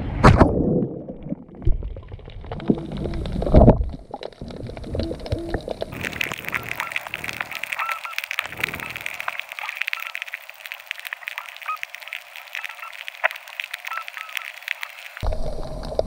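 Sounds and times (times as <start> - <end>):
underwater crackling and clicking: 1.1 - 16.0
low rumble: 15.2 - 16.0.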